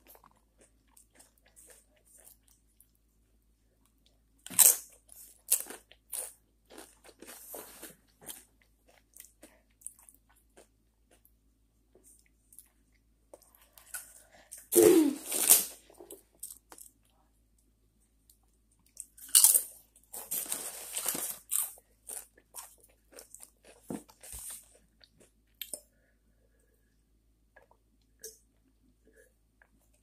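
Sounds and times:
chewing tortilla chips: 0.0 - 3.0, 3.8 - 11.4, 18.2 - 25.9.

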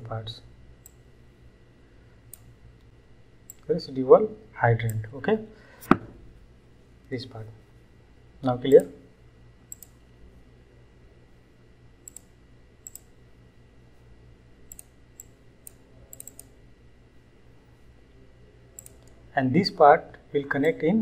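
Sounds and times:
faint low hum: 0.0 - 21.0
computer mouse clicking: 9.7 - 10.0, 12.0 - 13.1, 14.7 - 16.5, 18.8 - 19.2.

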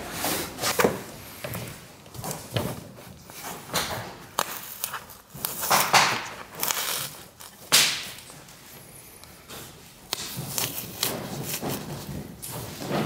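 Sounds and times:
plastic clips scraping and crunching: 2.0 - 8.3, 9.2 - 13.0.

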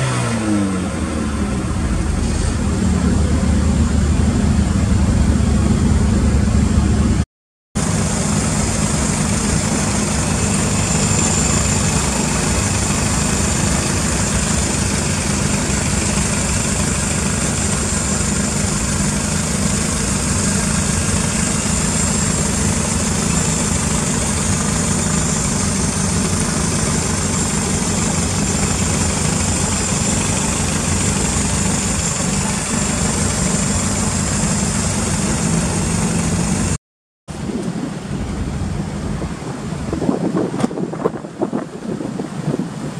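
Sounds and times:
car engine idling: 0.7 - 7.2, 7.8 - 40.0
high-pitched whine: 7.8 - 40.3.

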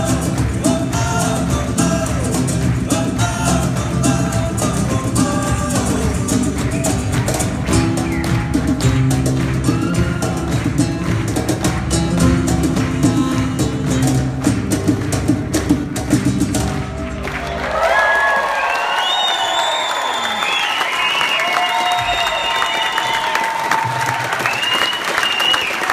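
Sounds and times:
hand drum: 0.0 - 17.2
nylon-string guitars: 0.0 - 17.3.

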